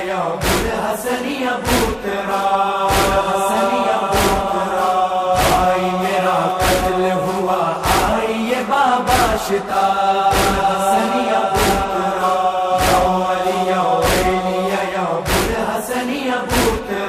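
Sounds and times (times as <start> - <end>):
voices chanting a lament: 0.0 - 17.0
chest-beating strikes: 0.4 - 0.8, 2.9 - 3.4, 4.1 - 6.0, 7.8 - 8.2, 10.3 - 10.8, 11.6 - 14.5, 15.2 - 15.7.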